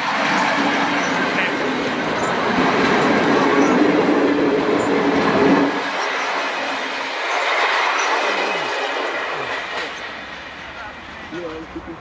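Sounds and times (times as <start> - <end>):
train drone: 0.0 - 12.0
wheels rushing on track: 0.0 - 12.0.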